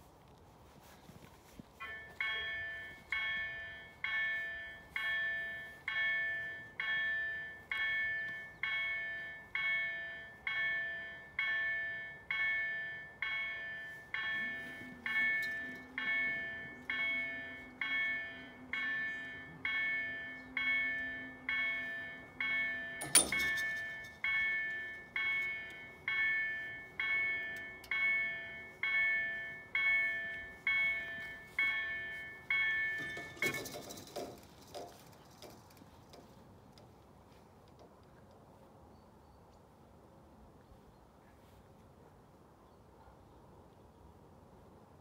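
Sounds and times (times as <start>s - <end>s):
level crossing warning bell: 0.8s - 36.4s.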